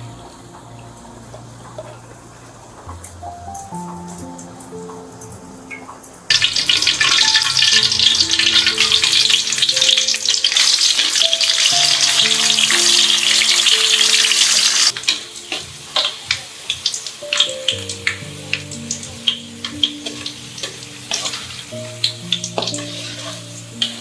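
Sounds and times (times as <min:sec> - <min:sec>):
food sizzling in hot oil: 0:06.3 - 0:24.0.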